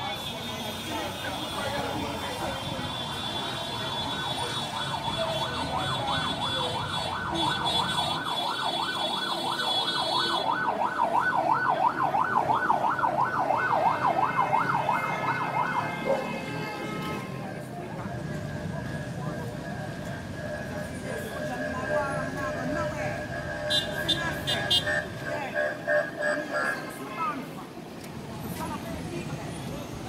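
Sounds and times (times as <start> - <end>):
emergency siren yelping: 3.0 - 16.5, 17.9 - 26.8.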